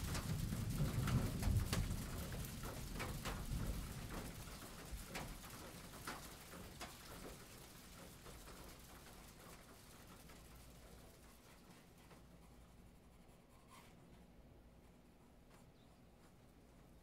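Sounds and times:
rain hissing: 0.0 - 12.3
drips and ticks: 0.0 - 12.6.

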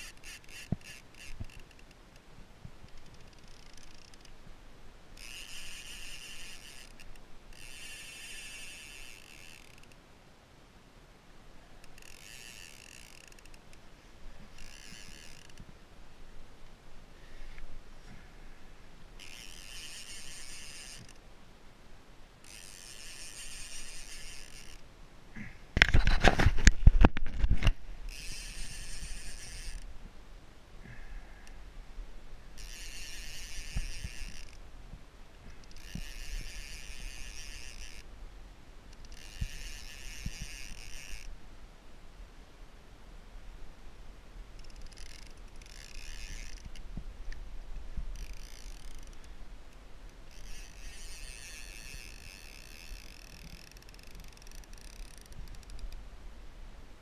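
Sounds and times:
fishing reel clicker buzzing: 0.0 - 2.3, 2.9 - 4.4, 5.2 - 10.0, 11.8 - 13.8, 14.5 - 15.7, 19.2 - 21.2, 22.4 - 24.8, 28.1 - 29.9, 32.6 - 34.6, 35.5 - 38.1, 38.9 - 41.3, 44.6 - 46.9, 48.1 - 56.0.

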